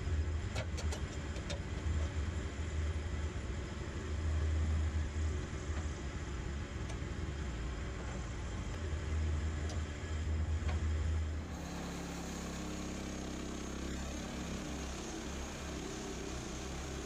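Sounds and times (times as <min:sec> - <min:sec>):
gas engine running: 0:09.6 - 0:17.0.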